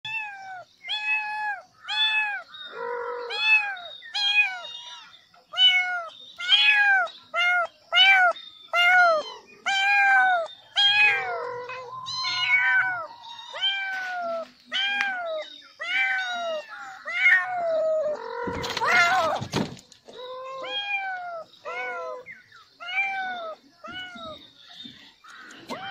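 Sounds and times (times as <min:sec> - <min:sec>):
kitten meowing: 0:05.6 - 0:19.4.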